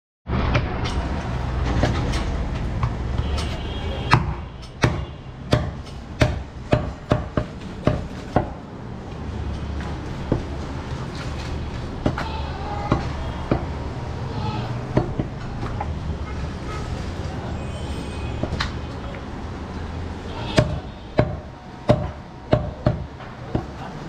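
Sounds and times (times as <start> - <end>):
cleaver chopping bone on wood: 4.1 - 8.6, 20.5 - 23.8.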